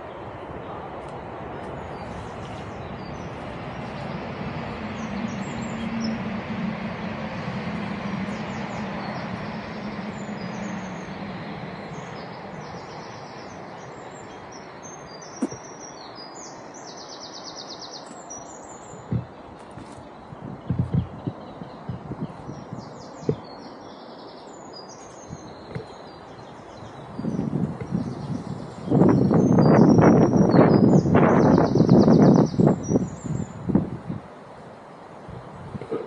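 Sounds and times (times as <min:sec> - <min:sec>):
passing vehicle rumble: 0:00.0 - 0:16.8, 0:17.4 - 0:36.0
small birds chirping: 0:07.4 - 0:33.6
short knocks: 0:19.0 - 0:19.4, 0:20.6 - 0:22.2.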